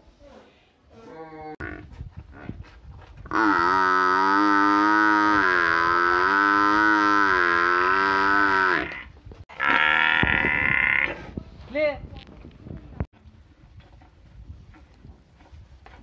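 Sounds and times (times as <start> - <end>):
water buffalo mooing: 3.3 - 11.2.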